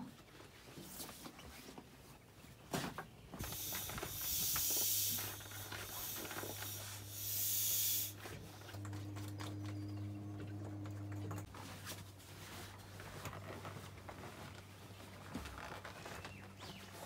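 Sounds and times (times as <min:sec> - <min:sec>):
air hissing through mattress valve: 0:03.4 - 0:08.3
steady low hum: 0:03.7 - 0:13.6.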